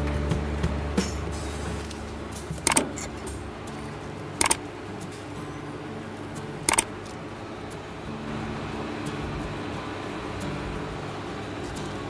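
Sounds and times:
steady low hum: 0.0 - 12.0
mouse double clicks: 2.6 - 3.0, 4.4 - 4.6, 6.7 - 6.9.

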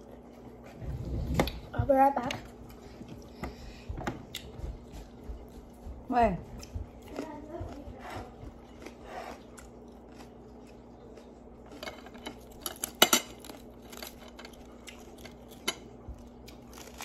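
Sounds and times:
chewing raw vegetables: 0.0 - 17.0
faint steady hum: 0.0 - 17.0
lettuce leaves crunching: 8.8 - 17.0.

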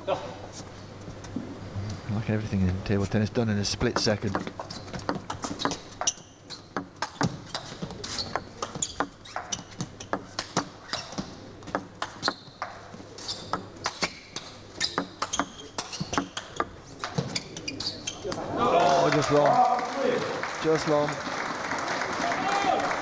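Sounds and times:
table tennis ball clicks: 3.8 - 17.2.

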